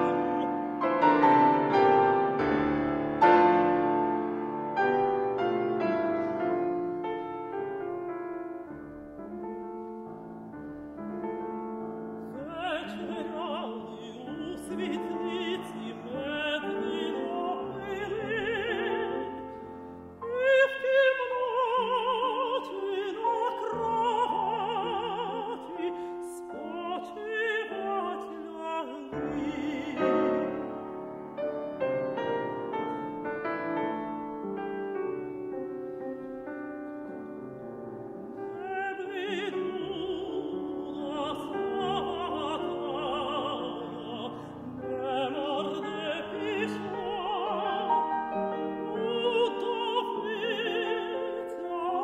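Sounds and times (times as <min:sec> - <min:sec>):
piano accompaniment: 0:00.0 - 0:52.0
woman singing with vibrato: 0:12.4 - 0:31.1, 0:38.4 - 0:52.0.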